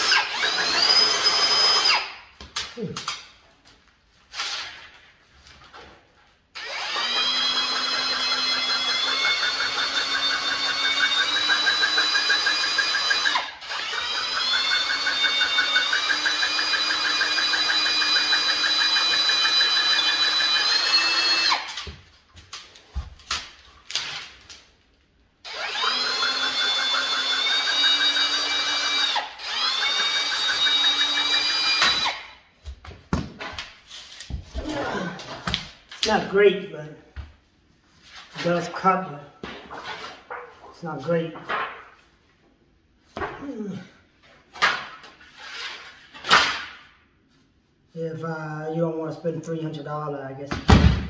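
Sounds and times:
drill shear cutting sheet metal: 0:00.0 - 0:02.1, 0:06.6 - 0:21.8, 0:25.5 - 0:32.3.

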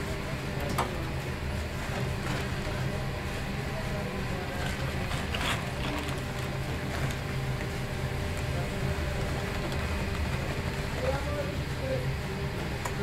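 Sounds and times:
machinery humming: 0:00.0 - 0:13.0.

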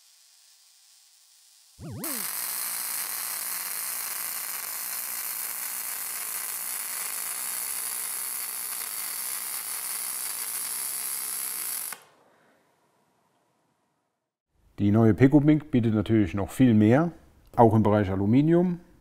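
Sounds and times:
brazing arc hissing: 0:00.0 - 0:12.0.

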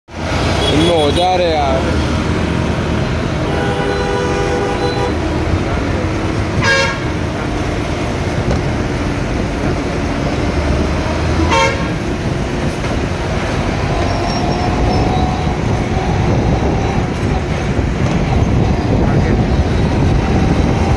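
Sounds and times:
road traffic and trucks: 0:00.1 - 0:20.9
vehicle horn toots: 0:03.4 - 0:05.2, 0:06.6 - 0:07.2, 0:11.4 - 0:12.0.

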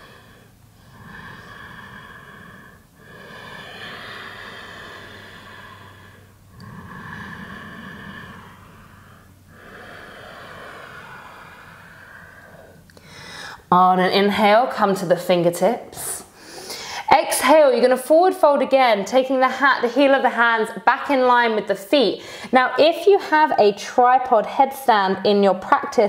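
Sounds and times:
woman breathing deeply: 0:00.0 - 0:13.7, 0:16.3 - 0:17.1, 0:22.2 - 0:22.5.

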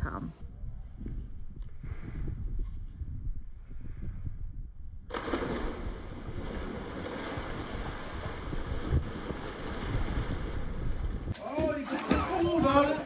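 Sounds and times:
slowed splash into pool: 0:05.1 - 0:13.0
rush of water: 0:11.3 - 0:13.0.

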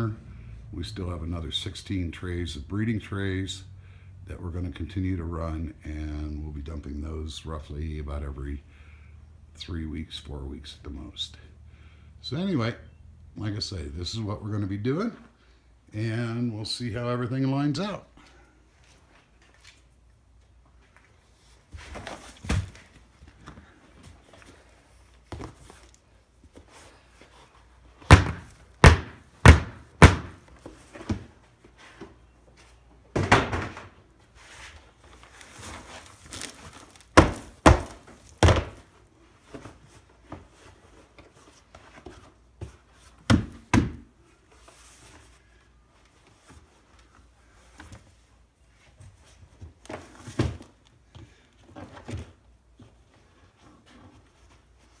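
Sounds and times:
plastic trays knocking on bin: 0:28.1 - 0:30.4, 0:33.2 - 0:34.0, 0:37.2 - 0:38.8.

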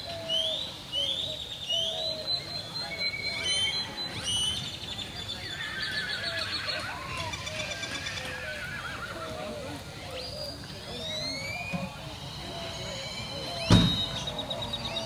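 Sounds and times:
horse whinnying: 0:05.4 - 0:09.5
short rising whistles: 0:10.9 - 0:15.0.

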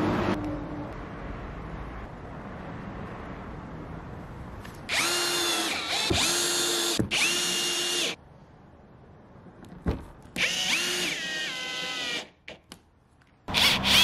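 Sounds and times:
cordless drill motor whining: 0:04.9 - 0:08.2, 0:10.4 - 0:12.4.

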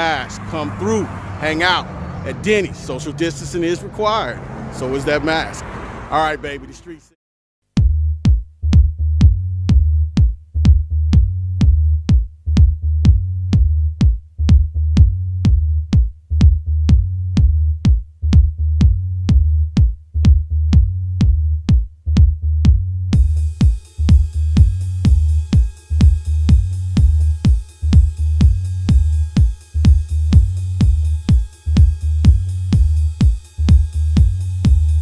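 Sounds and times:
electronic dance music: 0:23.2 - 0:35.0.

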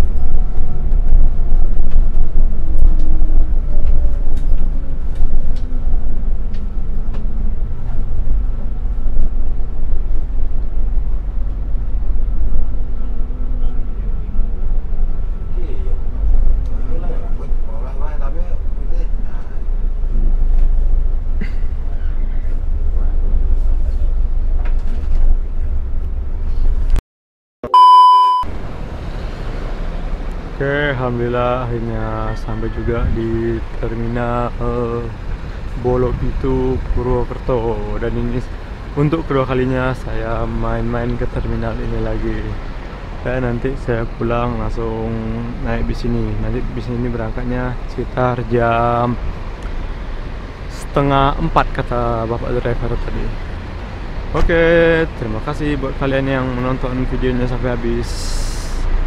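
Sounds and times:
engine and road rumble: 0:00.0 - 0:27.0, 0:27.7 - 0:59.0
electronic beep: 0:27.6 - 0:28.5.

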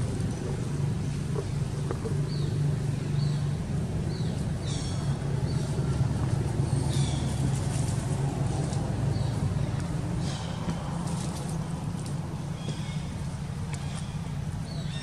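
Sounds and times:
motor engine humming: 0:00.0 - 0:15.0.

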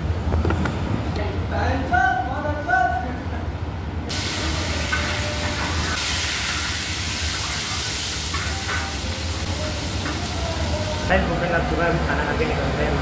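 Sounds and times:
ladle stirring in pan: 0:04.1 - 0:10.4
pan hissing: 0:04.1 - 0:11.1.

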